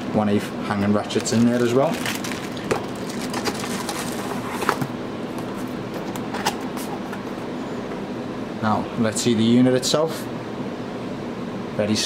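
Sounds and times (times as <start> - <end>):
plastic bag rustling: 1.0 - 4.9.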